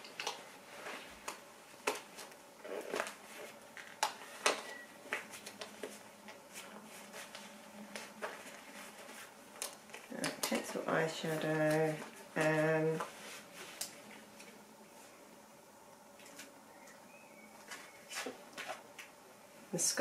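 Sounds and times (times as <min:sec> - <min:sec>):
soft rustling: 0:05.0 - 0:15.3
makeup items clicking and tapping: 0:09.6 - 0:10.9.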